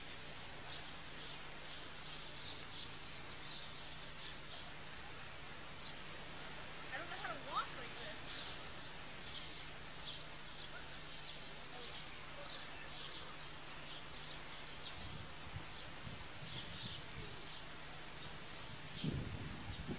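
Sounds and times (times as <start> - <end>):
background hiss: 0.0 - 19.9
small birds chirping: 0.0 - 19.9.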